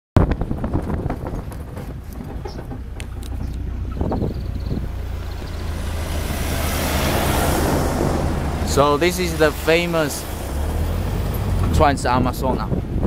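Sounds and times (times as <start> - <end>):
knocks and rattles from bumps: 0.2 - 7.3
passing truck rush: 0.3 - 13.0
vehicle engine drone: 0.4 - 13.0.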